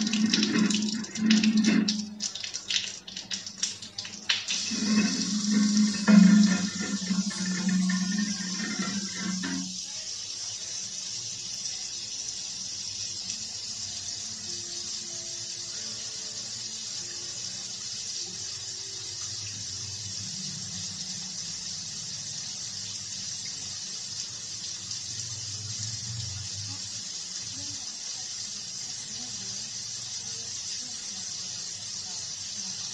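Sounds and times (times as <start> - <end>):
steady rain hiss: 23.6 - 32.9.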